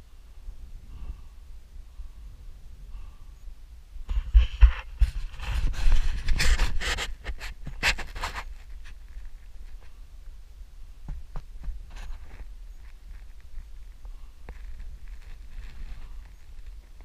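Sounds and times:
person breathing hard: 0.8 - 3.4.

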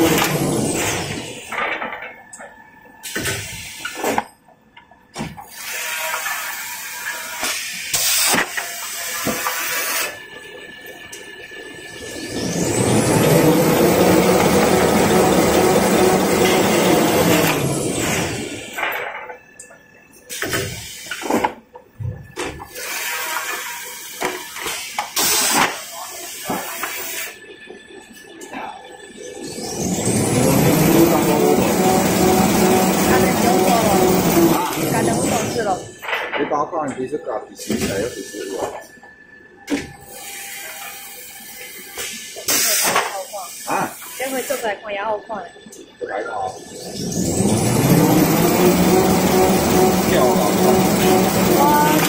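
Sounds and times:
machine whining: 0.0 - 36.1, 37.0 - 52.0
paper rewinding machine hissing: 47.3 - 52.0
voices: 49.8 - 52.0.

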